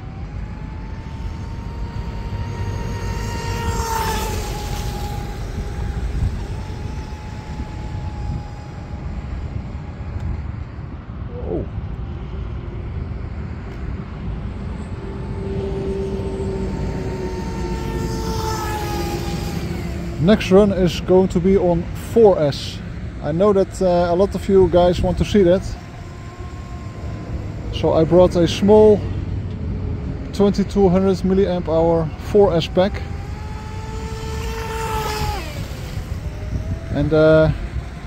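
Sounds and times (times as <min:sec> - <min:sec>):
electric boat motor whine: 0:00.0 - 0:38.0
low wind rumble: 0:00.0 - 0:38.0.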